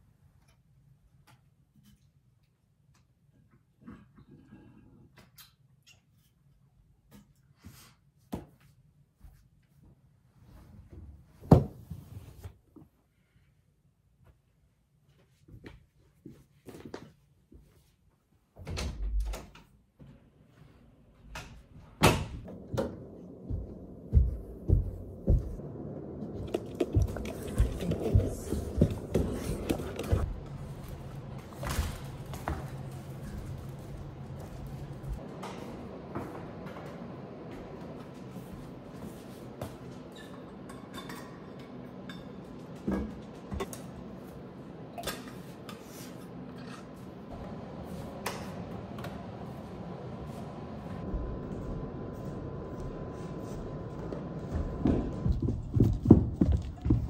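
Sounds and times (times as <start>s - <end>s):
footsteps on carpeted stairs: 22.4s - 36.4s, 50.3s - 57.0s
low hum: 22.5s - 39.0s, 46.5s - 57.0s.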